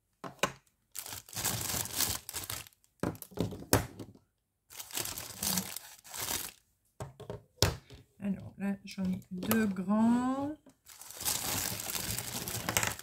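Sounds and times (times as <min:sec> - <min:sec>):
plastic bag crinkling: 0:00.9 - 0:02.9, 0:04.7 - 0:06.6, 0:10.8 - 0:13.0.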